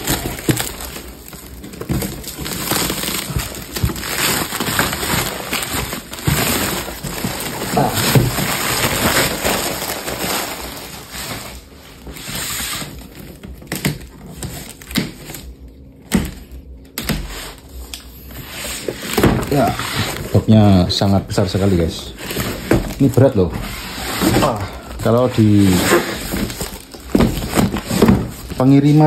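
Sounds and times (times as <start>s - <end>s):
plastic wrap rustling: 0.0s - 29.0s
cardboard box scraping and knocks: 21.6s - 28.6s.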